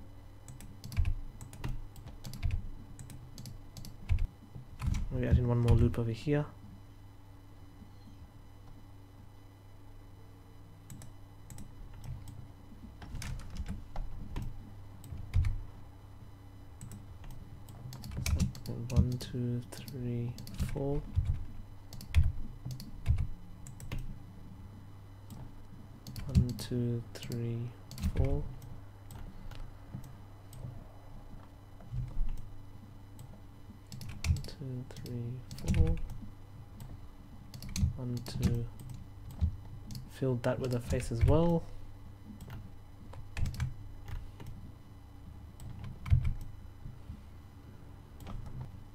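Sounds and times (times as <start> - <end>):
steady low hum: 0.0 - 48.9
computer keyboard keystrokes: 0.5 - 5.8, 13.0 - 15.6, 16.8 - 24.1, 26.0 - 26.6, 27.2 - 28.4, 33.9 - 36.2, 37.5 - 41.5, 42.4 - 44.6, 45.6 - 46.5.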